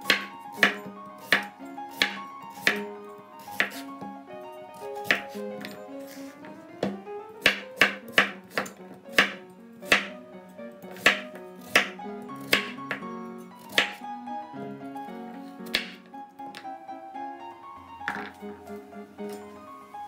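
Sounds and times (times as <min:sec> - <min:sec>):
background music: 0:00.0 - 0:20.0
knife chopping on cutting board: 0:00.1 - 0:02.8, 0:03.4 - 0:03.8, 0:05.0 - 0:06.2, 0:06.8 - 0:10.2, 0:11.0 - 0:13.0, 0:13.7 - 0:14.0, 0:15.7 - 0:16.0.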